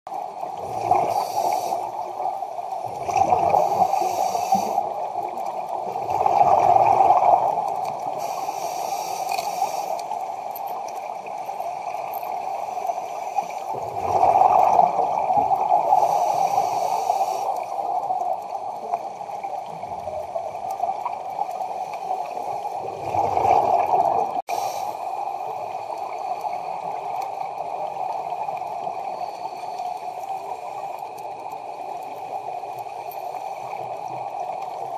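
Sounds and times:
regulator inhalation hiss: 0:01.1 - 0:02.2, 0:03.5 - 0:05.1, 0:08.1 - 0:10.2, 0:12.4 - 0:13.7, 0:15.9 - 0:17.9, 0:24.5 - 0:25.2
gurgling exhaust bubbles: 0:13.7 - 0:15.8.

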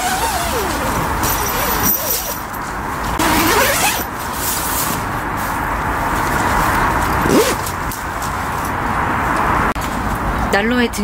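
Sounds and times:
zipper-like strokes: 0:00.0 - 0:02.5, 0:03.1 - 0:05.0, 0:06.4 - 0:07.7
tent fabric rustling: 0:00.0 - 0:08.6
road traffic noise: 0:00.0 - 0:11.0.

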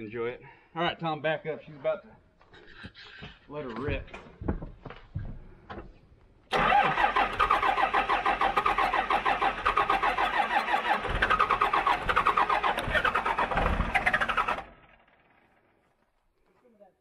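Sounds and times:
starter cranking diesel engine: 0:06.5 - 0:15.7.

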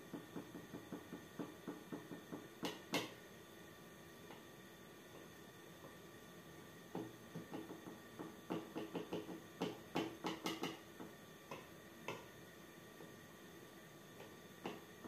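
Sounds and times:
spatula tapping plastic funnel: 0:07.0 - 0:12.3.

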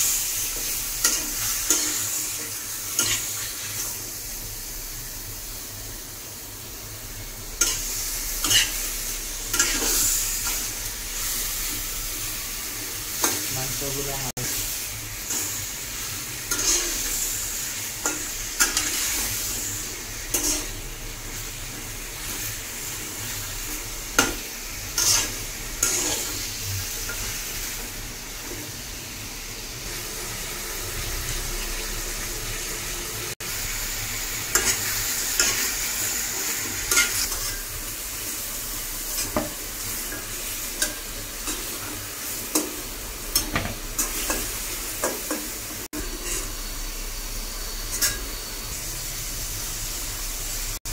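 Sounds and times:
chicken sizzling in hot oil: 0:00.0 - 0:50.9
metal spatula scraping a wok: 0:16.5 - 0:17.2, 0:20.3 - 0:20.7, 0:24.9 - 0:26.5.

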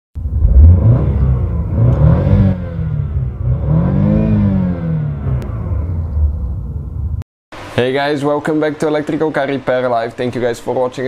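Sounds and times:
car engine revving: 0:00.2 - 0:07.7.

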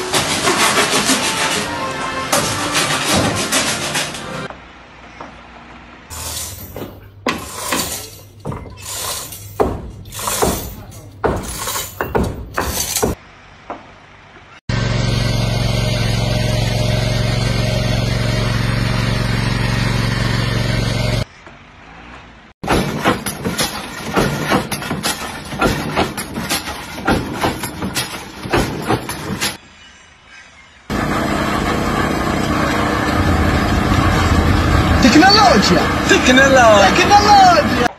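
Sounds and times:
briquette press metal clanks: 0:06.1 - 0:13.2, 0:22.6 - 0:29.6
motor drone: 0:14.7 - 0:21.2.

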